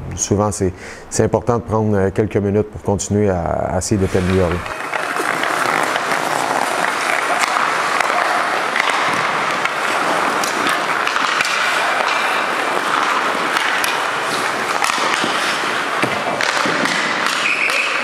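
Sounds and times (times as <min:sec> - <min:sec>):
skate blades scraping ice: 0:03.9 - 0:18.0
sticks and pucks clicking: 0:04.3 - 0:18.0.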